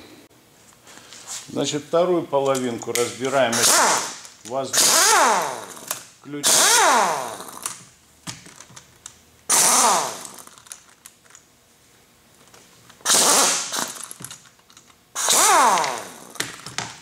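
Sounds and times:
pneumatic impact wrench: 3.5 - 7.8, 9.5 - 10.7, 13.0 - 14.4, 15.2 - 16.8.

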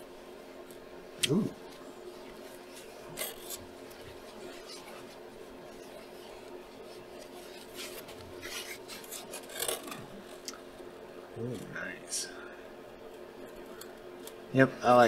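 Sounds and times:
faint steady hum: 0.0 - 15.0
packaging rustling and scraping: 5.8 - 10.4.

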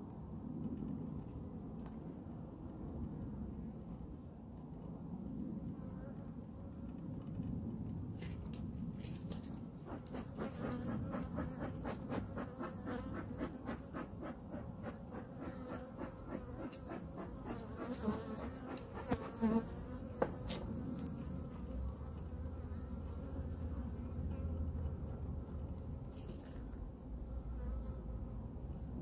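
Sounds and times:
honey bees buzzing: 9.8 - 24.8.

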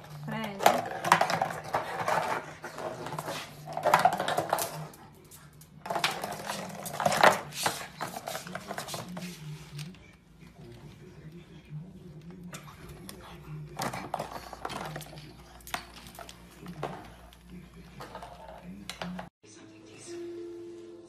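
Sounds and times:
plastic bottle crackling on tile floor: 0.0 - 4.9, 5.8 - 9.1.

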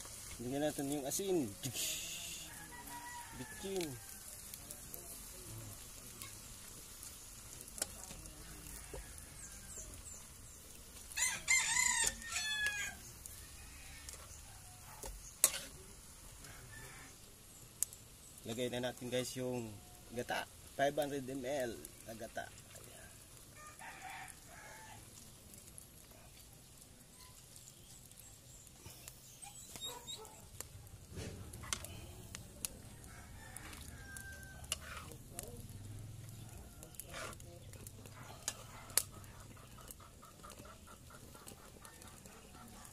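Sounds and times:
beans sizzling in a wok: 0.0 - 42.9
rooster crowing: 2.2 - 4.6, 8.4 - 10.1, 11.1 - 15.0, 23.0 - 25.1, 32.8 - 35.1
chickens clucking: 36.5 - 42.9.

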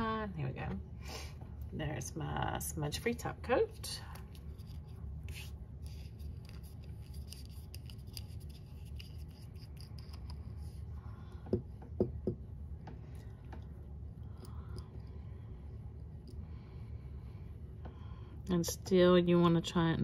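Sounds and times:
low steady hum: 0.0 - 20.0
glass bottle clicks and scratches: 6.2 - 10.7.

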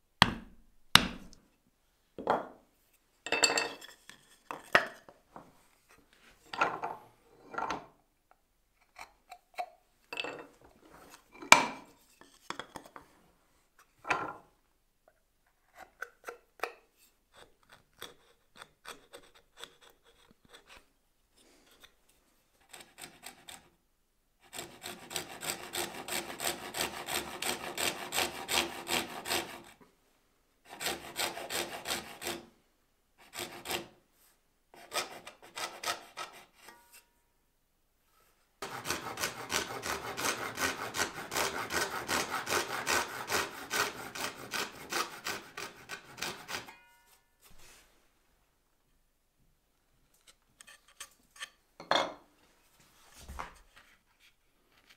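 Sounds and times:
hand saw cutting wood: 17.4 - 20.8, 22.6 - 23.7, 24.4 - 29.8, 30.6 - 32.5, 33.2 - 34.0, 34.8 - 37.1, 38.6 - 46.9.

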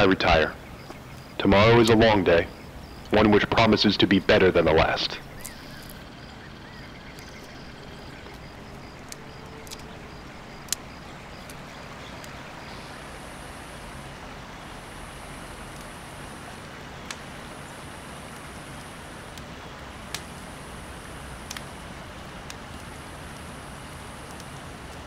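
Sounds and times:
distant traffic rumble: 0.0 - 25.0
sharp snaps: 7.1 - 9.9, 10.6 - 11.6, 17.0 - 17.3, 18.3 - 20.5, 21.4 - 21.8, 22.4 - 23.0, 24.2 - 25.0.

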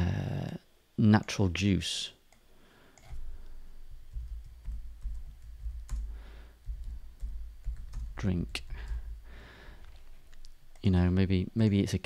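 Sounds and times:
typing on computer keyboard: 4.1 - 9.1.

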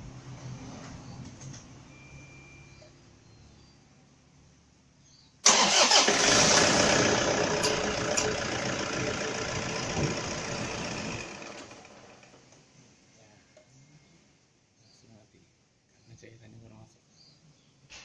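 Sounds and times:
diesel engine starting and running: 5.4 - 12.6.

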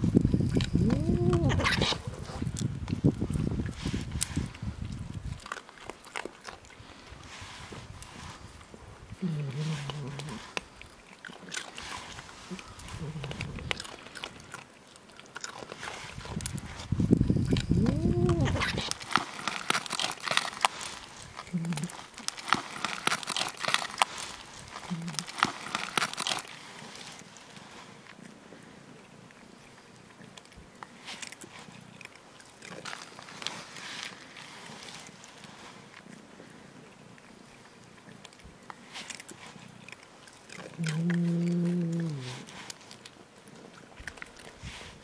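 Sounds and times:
cats crunching food: 0.0 - 45.0.

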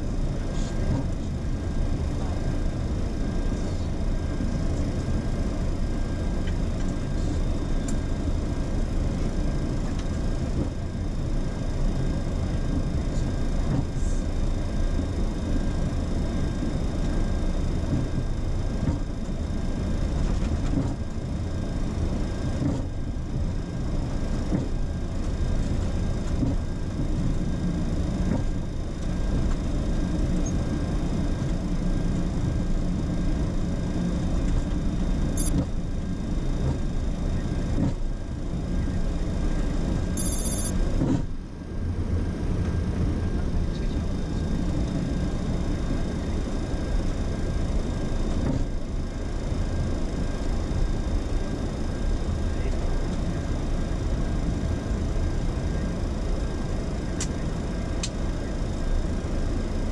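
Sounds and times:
jet engine rumble while taxiing: 0.0 - 59.9
high-pitched electronic blips: 40.2 - 40.7.

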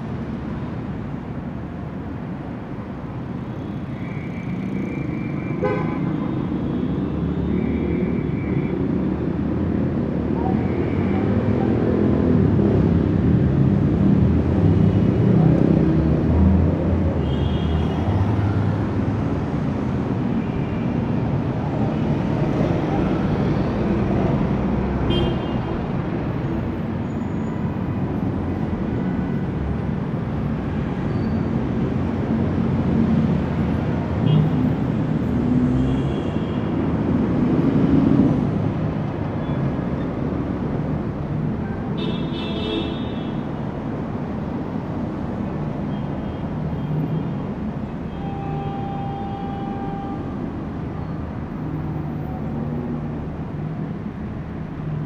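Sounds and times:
car engines and tyres passing: 0.0 - 55.0
high-pitched car horn toots: 48.1 - 50.4.

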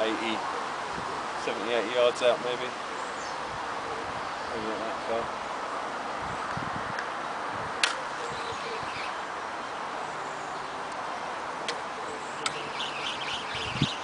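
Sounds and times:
wind: 0.0 - 14.0
faint bird calls: 7.7 - 11.0.

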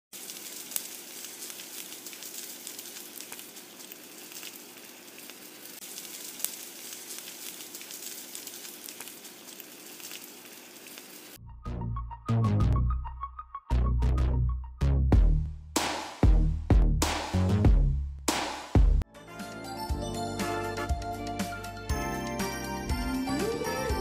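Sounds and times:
meat sizzling on griddle: 0.1 - 11.4
music with heavy bass beat: 15.1 - 19.0.

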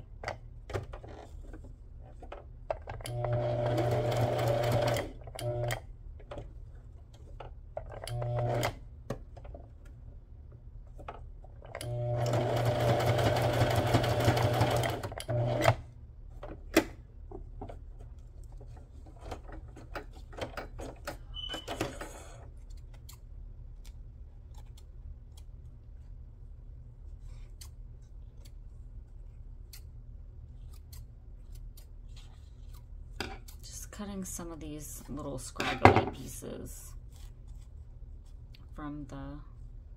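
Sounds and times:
electric sewing machine stitching: 3.0 - 5.8, 8.0 - 8.8, 11.7 - 15.8.

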